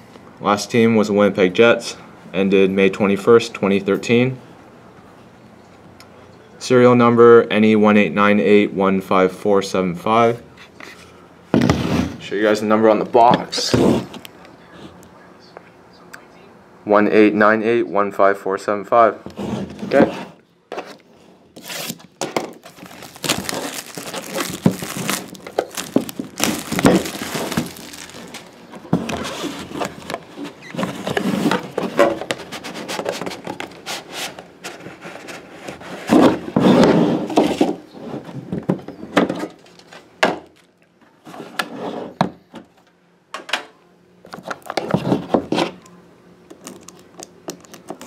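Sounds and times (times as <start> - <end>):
cardboard box rustling and scraping: 22.6 - 38.5.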